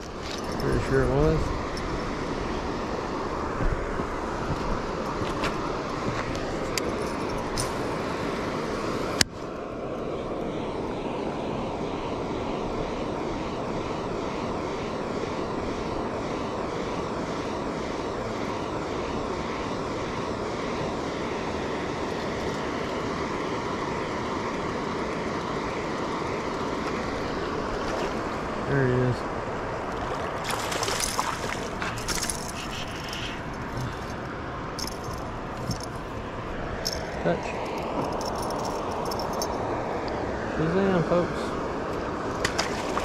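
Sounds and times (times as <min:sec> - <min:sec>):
water rushing from spillway: 0:10.2 - 0:33.8, 0:38.6 - 0:43.0.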